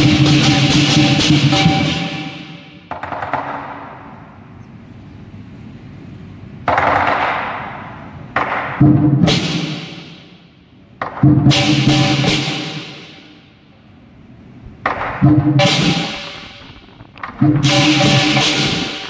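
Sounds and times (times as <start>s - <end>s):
cymbal crashes: 0.0s - 2.9s, 11.4s - 13.4s, 15.2s - 19.0s
drum strikes: 0.0s - 4.0s, 8.4s - 10.3s, 11.0s - 13.4s, 14.7s - 19.0s.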